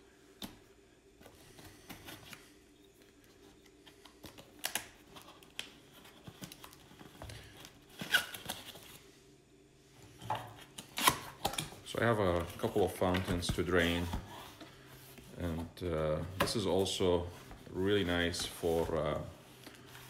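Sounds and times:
cardboard scraping and rustling: 12.3 - 20.0.

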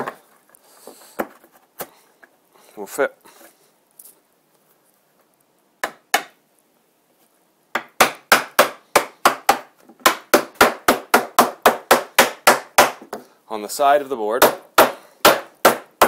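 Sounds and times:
hammer tapping wood: 5.8 - 6.4, 7.7 - 13.2, 14.4 - 16.0.

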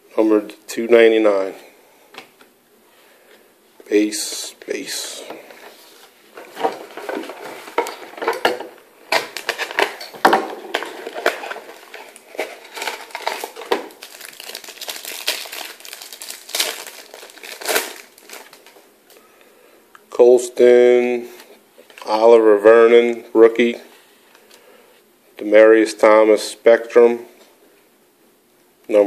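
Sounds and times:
card pack crinkling and crackling: 9.1 - 18.9.

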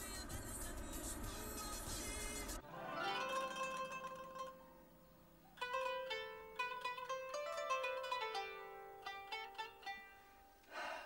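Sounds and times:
plucked string music: 2.6 - 10.6.

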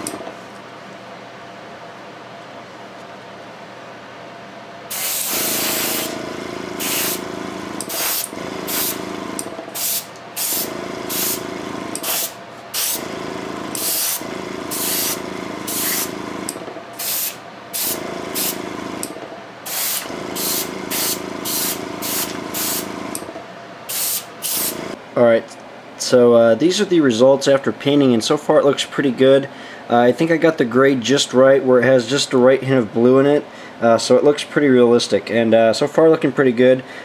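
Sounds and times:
steady hum: 0.0 - 30.7
airbrush spraying bursts: 4.9 - 6.2, 6.8 - 13.1, 13.7 - 16.2, 17.0 - 18.7, 19.7 - 23.0, 23.9 - 25.0.

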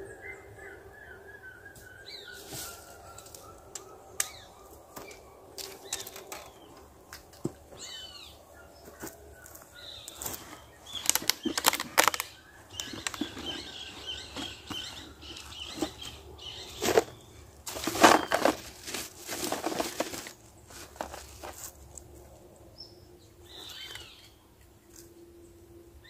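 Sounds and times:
small birds chirping: 0.0 - 21.8, 22.7 - 25.1
fishing gear clicking and rustling: 5.6 - 7.4, 10.2 - 17.1, 17.7 - 21.8.

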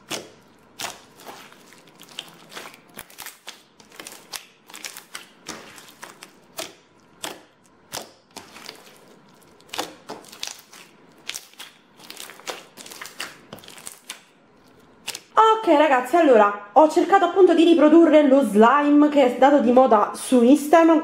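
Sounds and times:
slime crackling and popping: 0.0 - 15.4.

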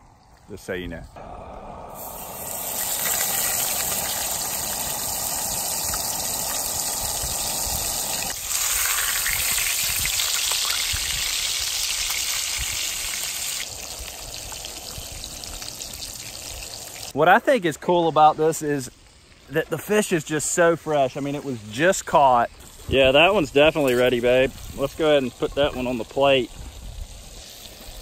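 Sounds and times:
fish sizzling in hot oil: 2.0 - 17.2, 23.1 - 28.0.

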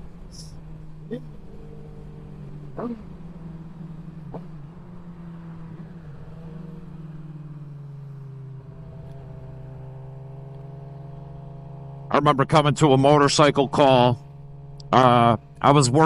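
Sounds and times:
motorcycle engine cruising: 0.0 - 16.0.

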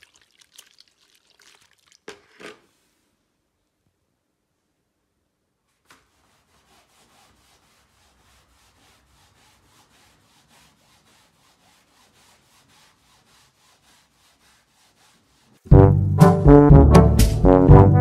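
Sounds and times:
sponge scrubbing seat belt webbing: 6.0 - 15.6.

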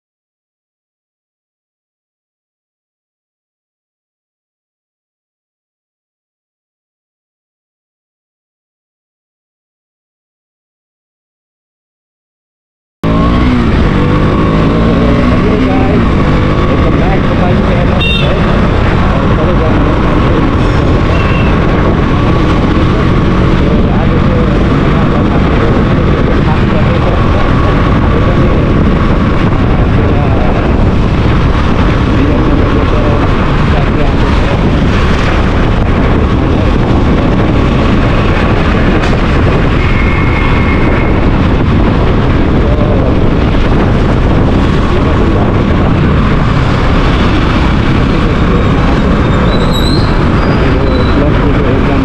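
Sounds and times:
motorbike engine and road noise: 13.0 - 52.0
wind buffeting microphone: 13.2 - 52.0.

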